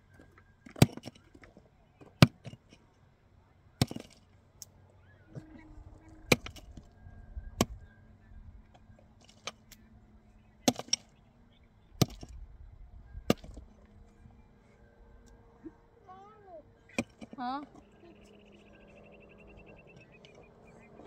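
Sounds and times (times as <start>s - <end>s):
pickaxe striking stony earth: 0.7s - 1.2s, 3.8s - 4.2s, 6.3s - 6.7s, 10.6s - 11.1s, 12.0s - 12.4s, 13.3s - 13.7s.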